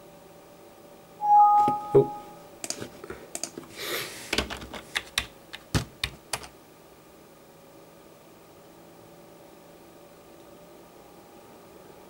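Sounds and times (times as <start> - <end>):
computer keyboard and mouse clicking: 2.6 - 3.6, 4.4 - 6.5.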